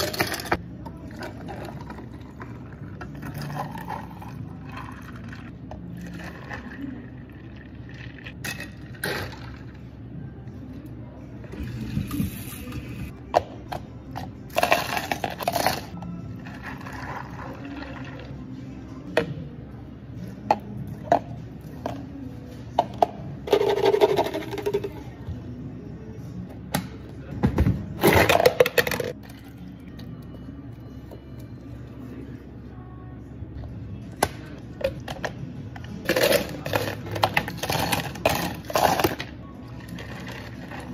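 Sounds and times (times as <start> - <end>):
plastic cups clicking and knocking: 28.2 - 29.3.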